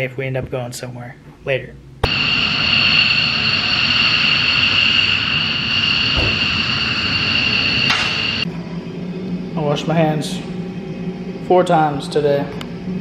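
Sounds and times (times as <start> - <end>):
fighter jet taking off: 2.0 - 8.5.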